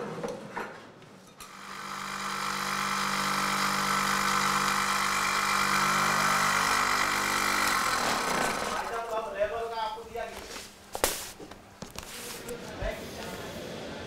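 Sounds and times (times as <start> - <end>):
cloth cutting machine running: 1.4 - 9.5.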